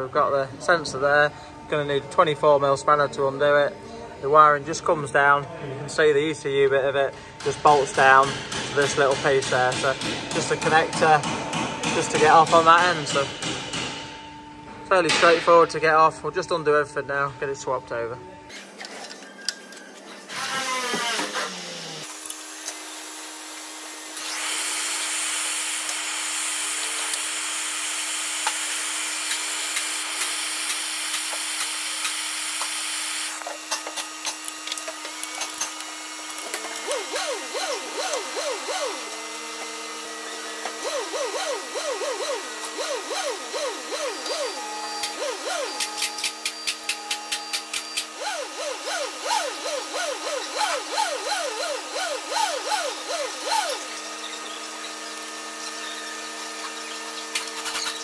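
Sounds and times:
spanner squeaking and clicking: 29.2s - 58.0s.

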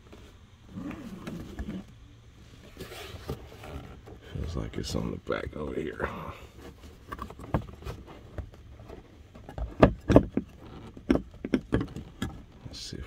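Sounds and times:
plastic clicks and knocks: 9.4s - 12.4s.

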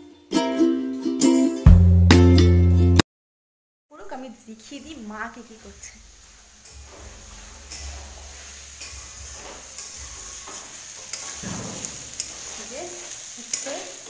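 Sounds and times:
curry sizzling in a wok: 4.1s - 14.0s
spatula scraping and clicking on pan: 6.6s - 14.0s.

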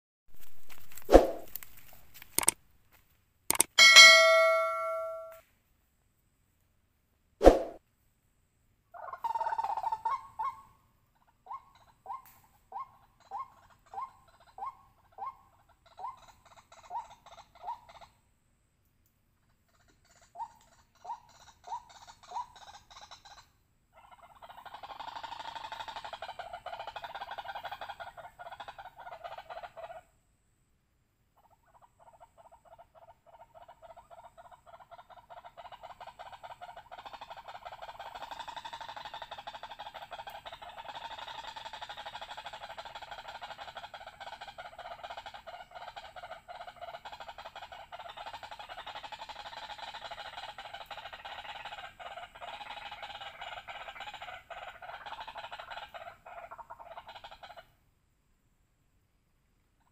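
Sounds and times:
waterhen calling harsh notes: 3.8s - 5.3s.

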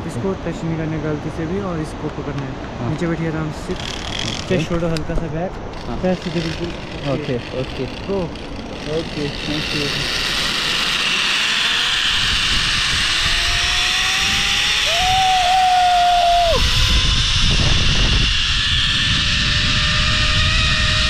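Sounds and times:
zipline trolley running on cable: 3.6s - 4.9s, 5.6s - 21.0s
wind rushing over microphone: 11.6s - 21.0s.

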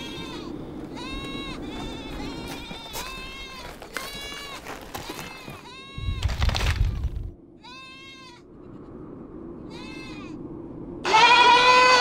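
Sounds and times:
livestock bleating: 0.0s - 6.2s, 7.6s - 8.8s, 11.0s - 12.0s.

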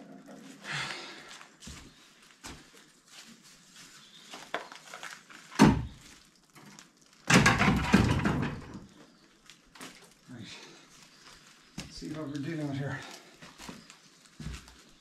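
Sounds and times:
objects clattering among debris: 4.3s - 9.2s.

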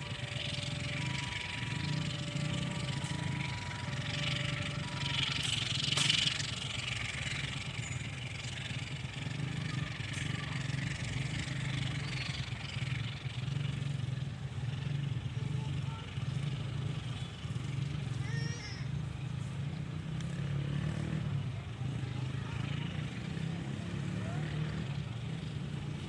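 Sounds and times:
train running noise: 0.0s - 18.6s
motorcycle engines idling: 0.0s - 26.0s.

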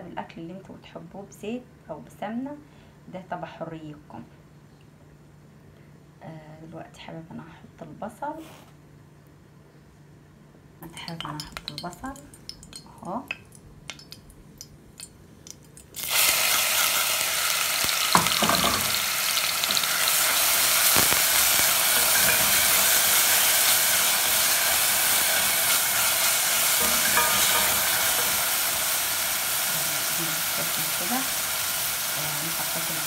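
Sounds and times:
onion sizzling in hot fat: 15.4s - 33.0s
wooden spoon stirring: 19.6s - 29.4s
spoon knocking against pot: 21.9s - 23.5s, 24.2s - 28.9s.

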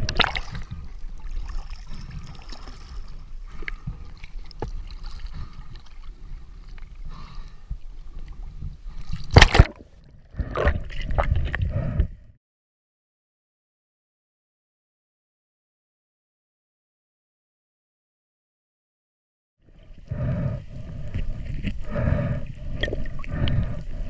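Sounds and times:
churning underwater noise: 0.0s - 7.8s, 8.4s - 12.2s
water sloshing and gurgling: 0.0s - 12.4s, 19.6s - 24.0s
loud splash: 9.3s - 9.8s.

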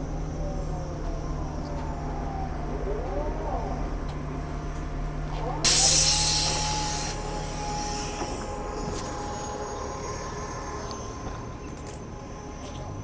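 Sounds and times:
street sound: 0.0s - 13.0s
compressed air hiss of bus doors: 5.7s - 9.6s.

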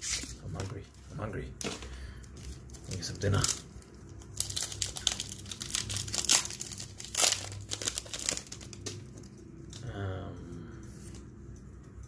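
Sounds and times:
foil wrapper tearing and crinkling: 2.7s - 9.3s.

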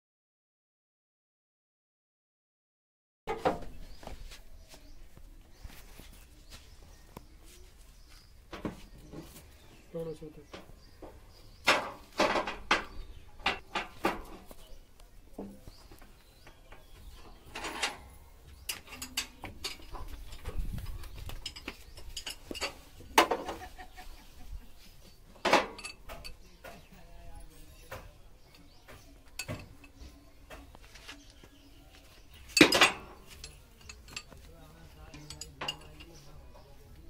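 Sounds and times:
hand tools clanking on metal: 10.4s - 14.7s, 15.4s - 23.7s, 25.3s - 27.0s, 27.6s - 30.8s, 32.3s - 36.8s.

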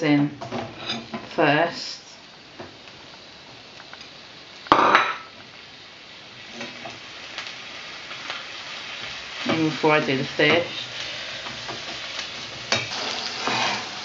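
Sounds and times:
mushrooms sizzling in a pan: 0.0s - 14.0s
knock on frying pan: 4.7s - 5.3s.

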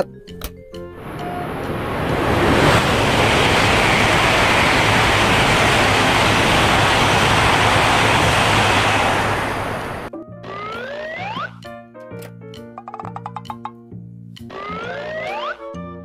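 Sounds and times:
bullet train rushing past: 1.0s - 10.1s.

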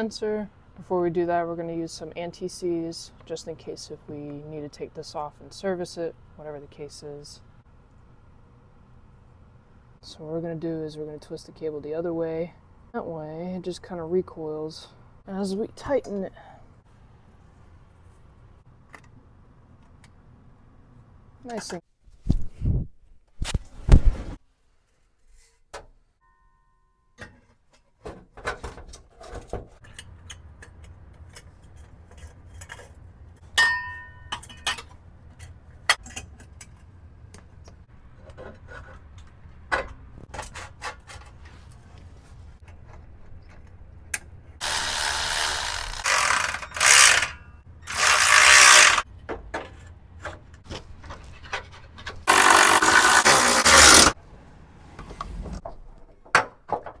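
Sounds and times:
cordless power tool bursts: 44.6s - 49.0s, 52.3s - 54.2s.

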